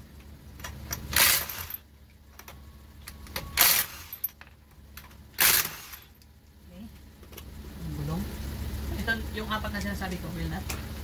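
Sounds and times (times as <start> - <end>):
impact wrench hammering: 3.3 - 4.4, 5.0 - 6.1.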